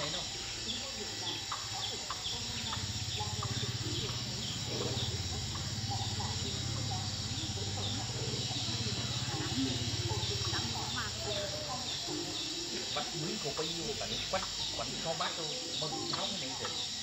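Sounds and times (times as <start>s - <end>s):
bird calls: 0.0s - 17.0s
small high chirps: 0.0s - 17.0s.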